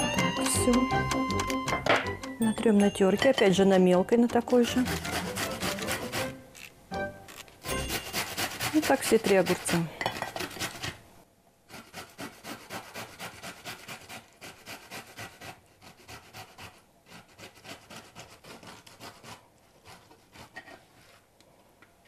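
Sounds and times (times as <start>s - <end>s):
cucumber grated on metal grater: 4.1s - 6.4s, 7.7s - 11.0s.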